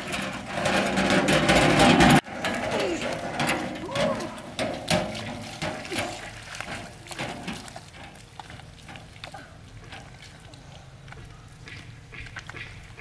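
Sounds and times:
wheelbarrow clattering and squeaking: 0.0 - 11.4.

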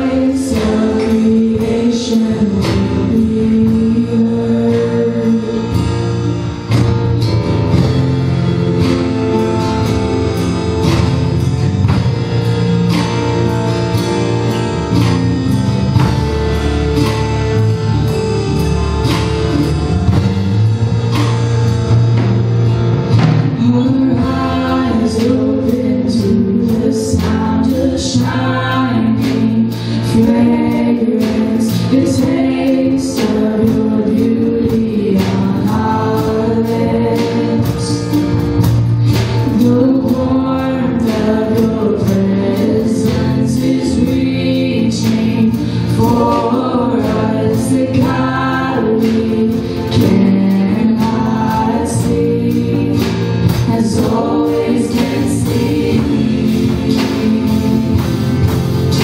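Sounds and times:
voices singing: 0.0 - 6.9, 23.5 - 59.0
drums: 0.0 - 59.0.

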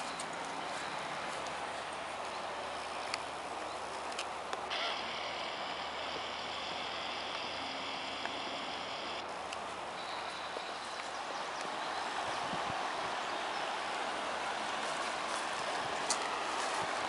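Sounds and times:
river water over stones: 0.0 - 17.0
high-pitched buzz: 4.7 - 9.2.

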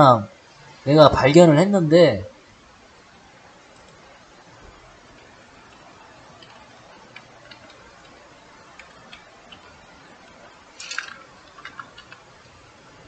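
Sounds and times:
faint room hiss: 0.0 - 13.0
keyboard keys clicking: 6.4 - 8.2.

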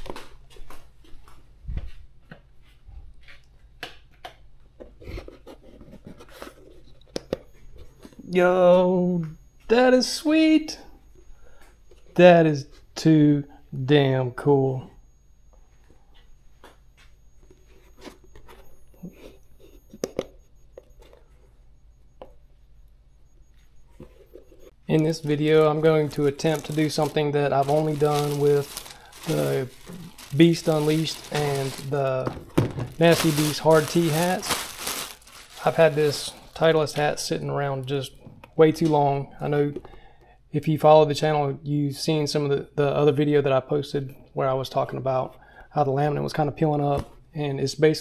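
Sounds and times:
faint high-pitched whine: 6.3 - 48.0
hat rustling in hands: 25.1 - 32.1, 32.9 - 36.6.

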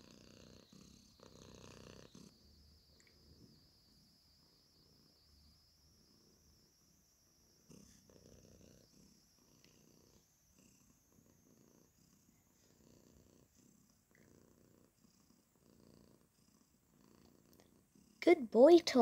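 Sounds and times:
cat purring: 0.0 - 19.0.

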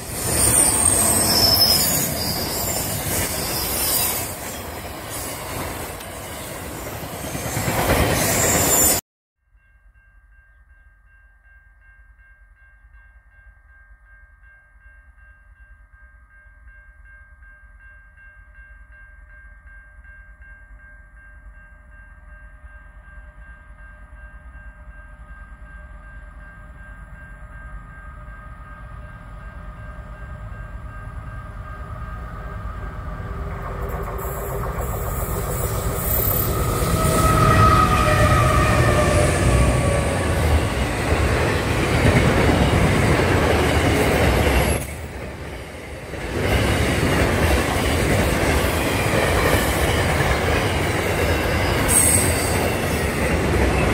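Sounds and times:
freight train passing: 0.0 - 9.0, 20.8 - 53.9
wheels rushing on rail: 0.0 - 9.0, 28.2 - 53.9.

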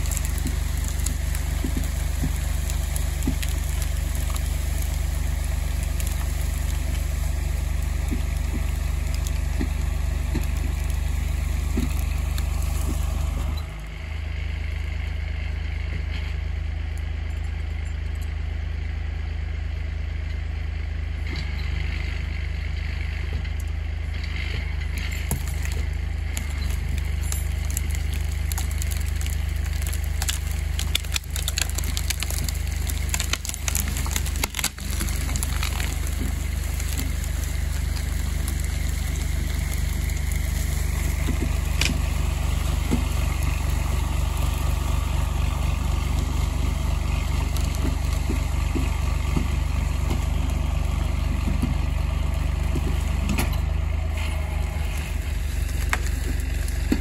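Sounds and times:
tractor engine idling: 0.0 - 57.0
sharp cracks and clicks: 25.0 - 44.5.

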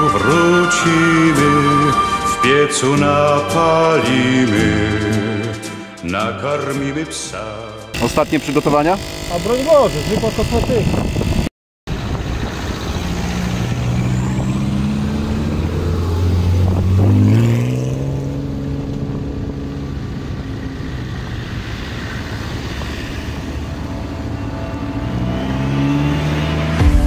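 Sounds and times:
off-road engines running on gravel: 8.0 - 26.8
engine revving: 8.0 - 27.0.

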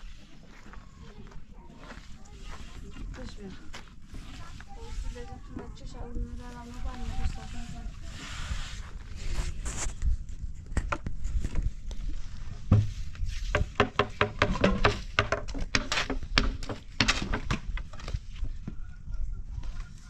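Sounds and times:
irregular knocks and taps: 12.7 - 17.6.

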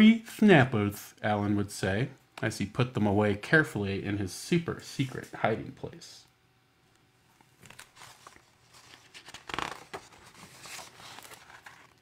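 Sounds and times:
paper pages rustling: 7.4 - 12.0.

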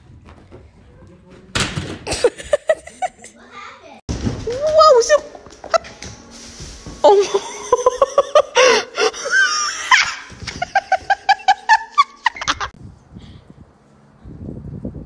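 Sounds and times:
person laughing hard: 2.1 - 3.3, 7.2 - 12.7.

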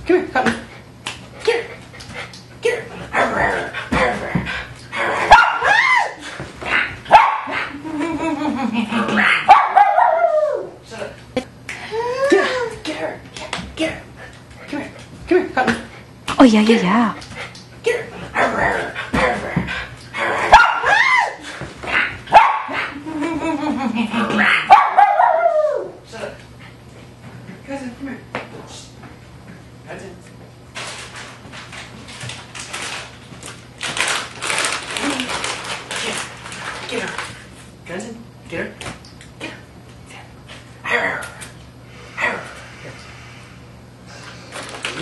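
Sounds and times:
dog barking: 5.3 - 5.8, 7.1 - 7.7, 9.4 - 10.3, 20.5 - 21.0, 22.3 - 22.9, 24.5 - 25.6.

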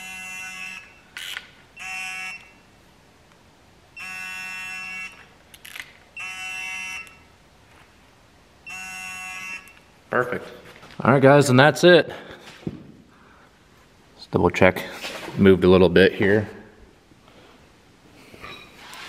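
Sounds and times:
torque wrench beeping: 0.0 - 2.7, 4.0 - 7.3, 8.6 - 9.9.

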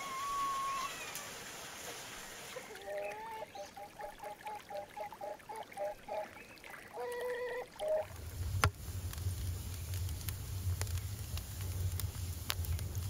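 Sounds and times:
waterfowl honking: 2.5 - 8.1
wood fire crackling: 7.7 - 13.0.

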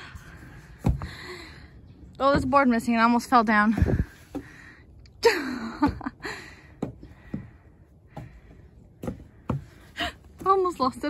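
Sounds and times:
footsteps on wooden boards: 0.5 - 1.3, 3.6 - 4.7, 6.6 - 11.0.

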